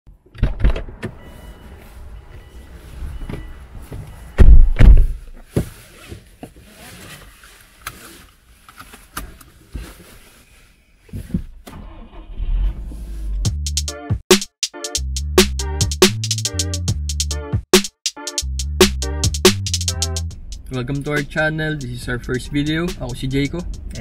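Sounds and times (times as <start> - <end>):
people shuffling in seats: 1.4 - 4.3, 5.3 - 11.5
car doors shutting: 3.2 - 6.2.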